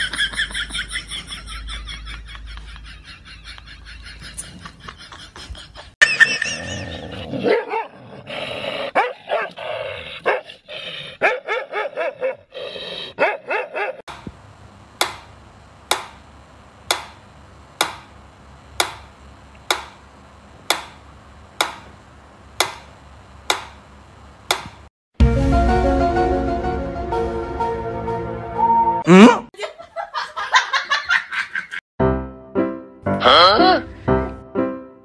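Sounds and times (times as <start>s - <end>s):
dog barking and growling: 6.4s - 14.1s.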